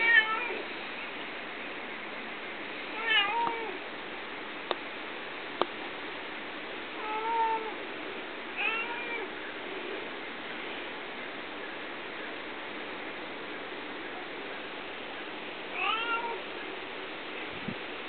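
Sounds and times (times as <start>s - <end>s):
cat meowing: 0.0s - 0.6s, 2.9s - 3.8s, 7.0s - 7.8s, 8.6s - 9.3s, 15.7s - 16.4s
steady hiss: 0.0s - 18.0s.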